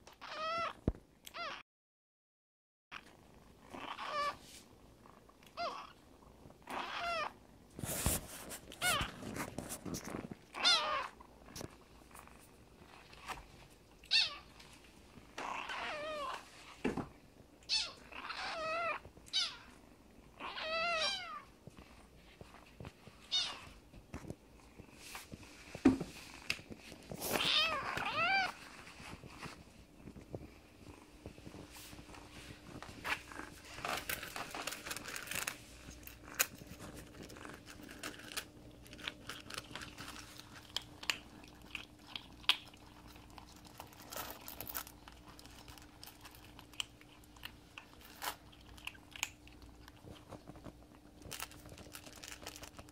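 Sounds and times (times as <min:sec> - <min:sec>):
kittens meowing: 0:06.7 - 0:07.3, 0:10.6 - 0:11.2, 0:27.3 - 0:28.6.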